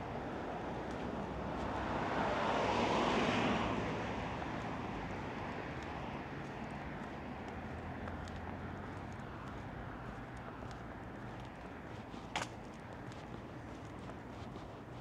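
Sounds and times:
road vehicle driving past: 0.4s - 11.4s.

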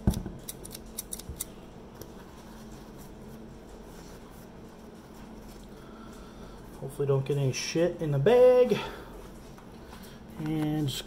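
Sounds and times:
faint steady hum: 0.0s - 11.0s
scissors clicking: 0.4s - 1.5s.

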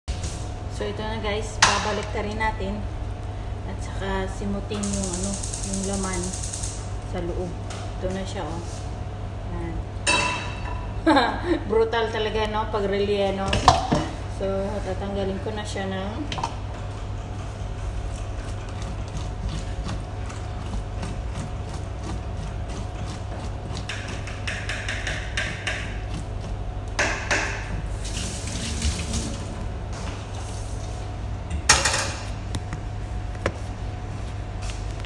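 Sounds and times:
steady low hum: 0.1s - 35.0s
spoon scraping fish: 18.2s - 26.6s
water splashing in sink: 18.6s - 29.6s.

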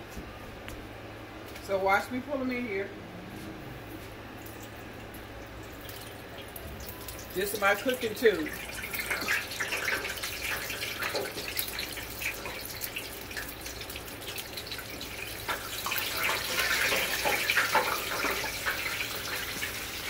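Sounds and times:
hot oil sizzling and crackling: 4.4s - 20.0s.

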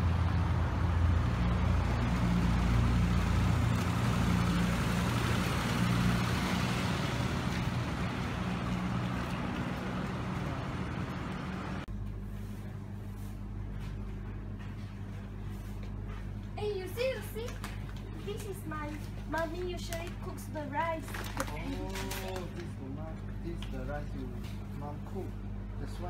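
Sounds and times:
road noise: 0.0s - 12.0s
traffic engine rumble: 0.0s - 26.0s.

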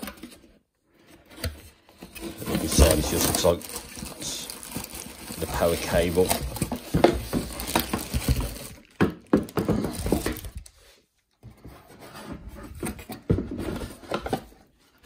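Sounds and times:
cardboard scraping and rubbing: 2.0s - 4.3s, 11.5s - 14.7s.

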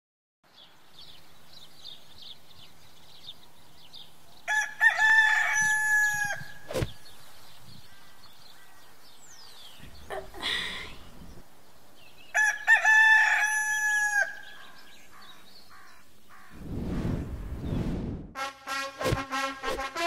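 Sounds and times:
small birds chirping: 0.5s - 4.6s, 6.3s - 12.7s, 14.2s - 16.6s
rooster crowing: 4.5s - 6.6s, 12.3s - 14.6s.

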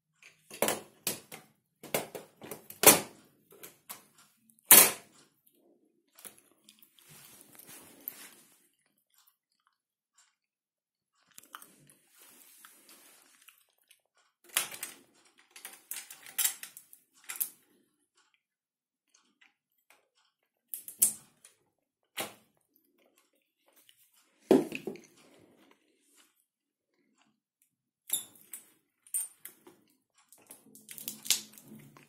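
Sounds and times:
plastic and metal clicks and knocks: 0.2s - 5.2s, 14.4s - 17.6s.

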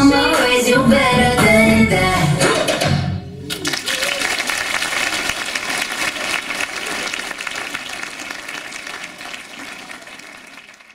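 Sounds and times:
audience applauding: 3.5s - 10.9s.

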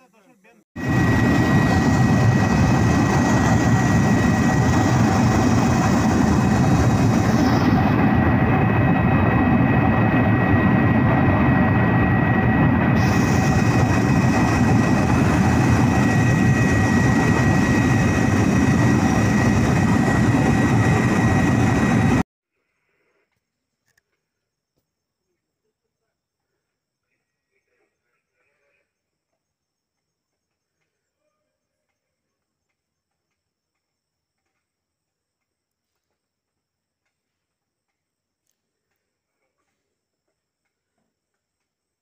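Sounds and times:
aircraft engine drone: 0.0s - 22.2s
high constant whine: 0.0s - 22.2s.

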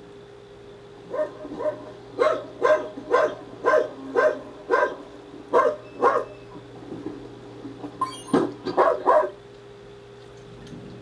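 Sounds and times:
dog barking: 1.1s - 6.4s, 8.7s - 9.4s.

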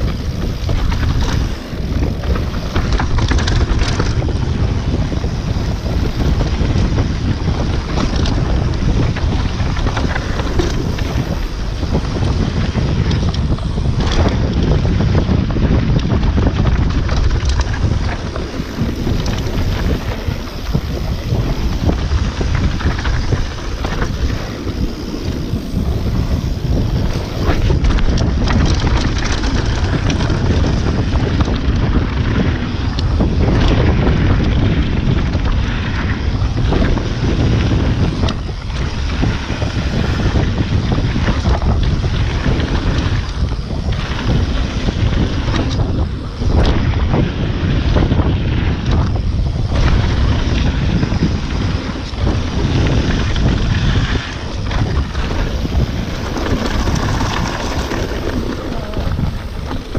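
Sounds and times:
tyre rumble on gravel: 0.0s - 15.0s, 49.7s - 59.9s
bike rattles and knocks: 0.0s - 59.9s
wind rushing over microphone: 0.0s - 59.9s.

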